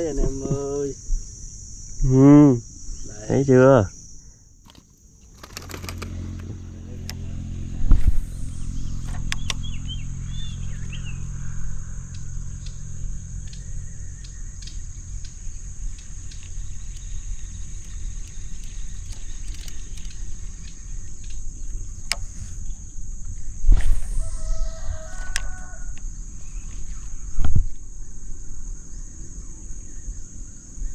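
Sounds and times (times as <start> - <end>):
high insect drone: 0.0 - 30.9
sharp clicks: 4.6 - 7.2, 8.4 - 9.8, 13.4 - 22.4
low hum: 5.4 - 30.3
low rumble: 5.8 - 25.0
bird chirps: 8.1 - 23.0.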